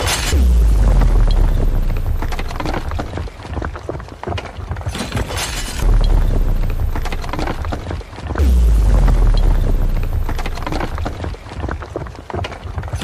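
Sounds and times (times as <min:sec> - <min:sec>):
deep rumble: 0:00.0 - 0:03.3, 0:05.8 - 0:11.4
debris crackling and clattering: 0:00.0 - 0:13.0.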